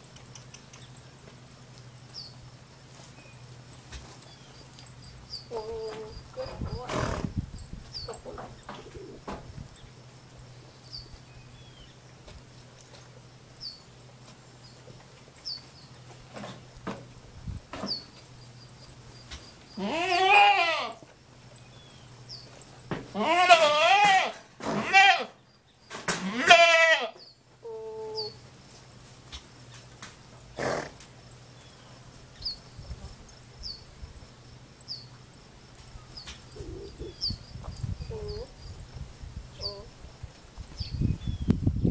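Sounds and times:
small bird chirping: 0.0s - 1.3s, 3.2s - 12.2s, 31.4s - 34.0s, 34.8s - 35.2s, 35.9s - 40.0s, 40.7s - 41.9s
pony whinnying: 30.6s - 31.0s.

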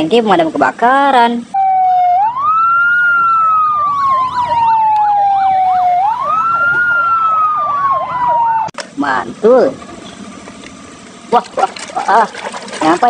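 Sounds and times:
siren warbling rapidly: 1.5s - 8.7s
fire truck siren wailing: 1.5s - 8.8s.

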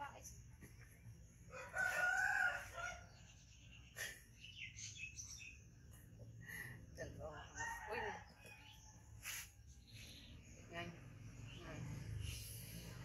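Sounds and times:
rooster crowing: 1.5s - 3.1s
high bird chirps: 2.8s - 6.0s.

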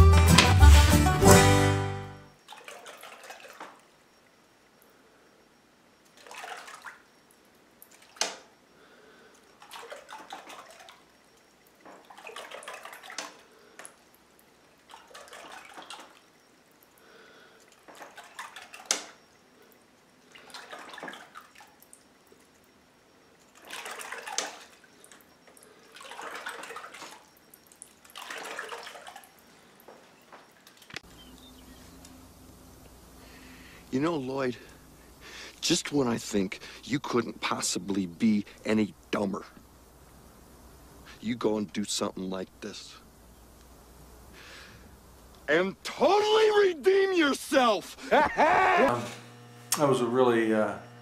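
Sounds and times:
water swishing in bathtub: 2.4s - 4.0s, 6.1s - 7.2s, 7.8s - 8.6s, 9.4s - 17.0s, 17.6s - 31.0s.

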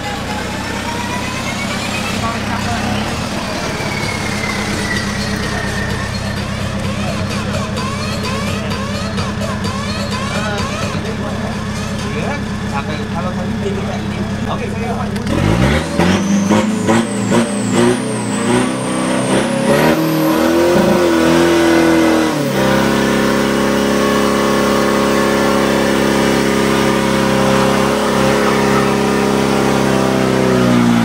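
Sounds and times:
diesel truck engine revving: 0.0s - 31.0s
high whistle climbing in pitch: 3.3s - 6.6s.

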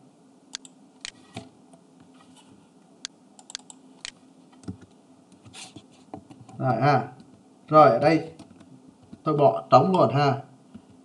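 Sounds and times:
mouse clicks: 0.5s - 1.2s, 3.0s - 4.8s
computer keyboard keystrokes: 3.4s - 4.9s.

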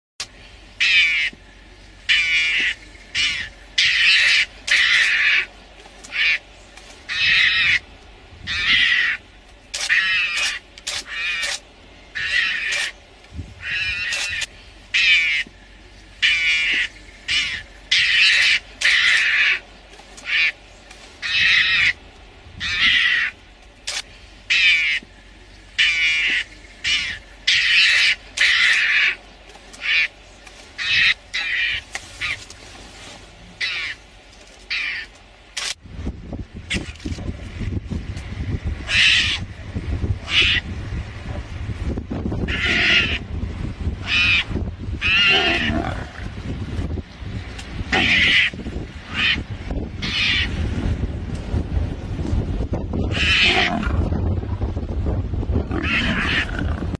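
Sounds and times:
mongoose harsh calls: 0.8s - 1.4s, 2.0s - 6.5s, 7.1s - 13.0s, 13.6s - 15.5s, 16.2s - 20.6s, 21.2s - 22.0s, 22.6s - 25.1s, 25.8s - 29.2s, 29.8s - 30.2s, 30.8s - 32.4s, 33.6s - 34.0s, 34.7s - 35.7s, 38.8s - 39.5s, 40.2s - 40.8s, 42.4s - 43.3s, 44.0s - 46.4s, 47.9s - 50.6s, 53.0s - 54.1s, 55.7s - 56.9s.

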